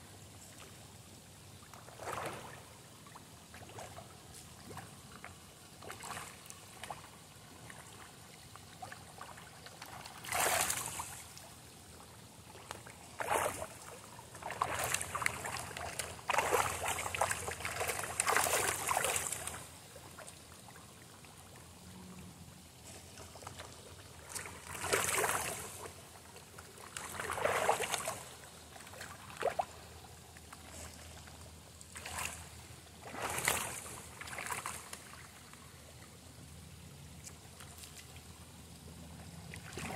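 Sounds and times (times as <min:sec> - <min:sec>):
fish splashing and gulping: 0:12.2 - 0:20.2.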